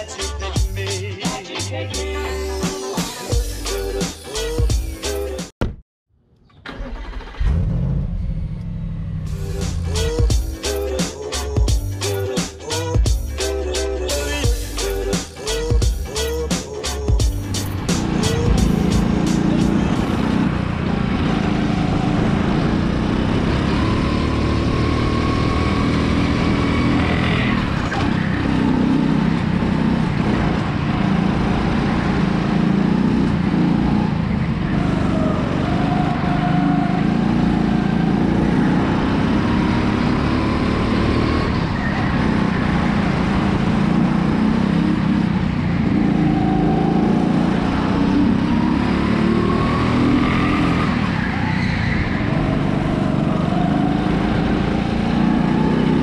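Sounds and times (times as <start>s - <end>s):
go-kart engine revving: 6.6s - 10.0s, 17.8s - 56.0s.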